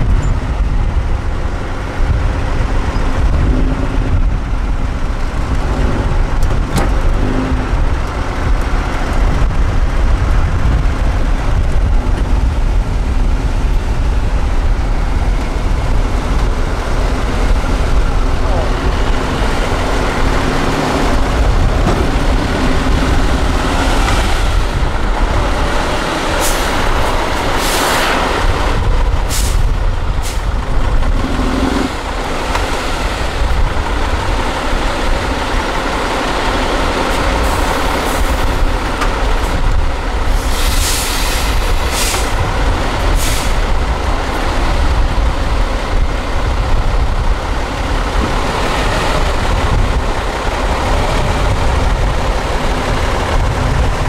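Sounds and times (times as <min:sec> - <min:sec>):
truck diesel engine under load: 0:00.0 - 0:54.0
air brake hisses: 0:40.4 - 0:42.3.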